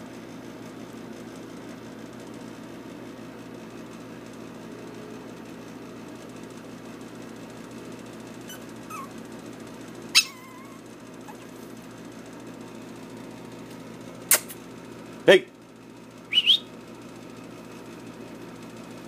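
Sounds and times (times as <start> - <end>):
low background hum: 0.0 - 19.0
puppy squeak: 8.4 - 9.2, 10.1 - 11.6
puppy yelp: 8.4 - 9.2, 10.1 - 11.7.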